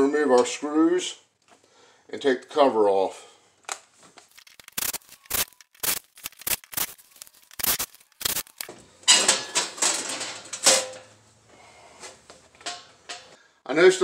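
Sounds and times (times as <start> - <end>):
sheet metal cover rattling: 9.0 - 11.2.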